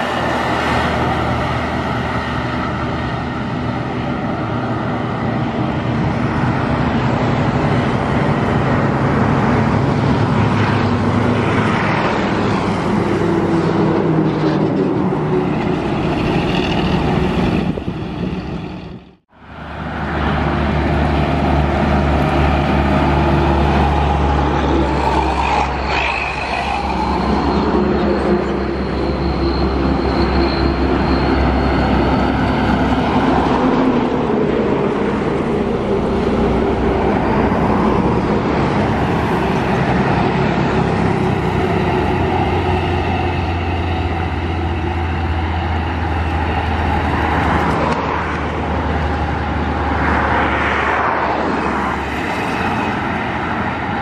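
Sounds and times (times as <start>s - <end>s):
highway traffic passing: 0.0s - 54.0s.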